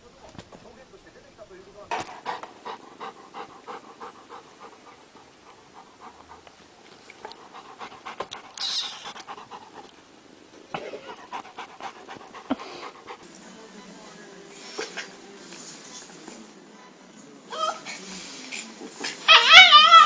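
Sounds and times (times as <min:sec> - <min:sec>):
dog panting: 0:00.0 - 0:10.1, 0:11.0 - 0:13.3.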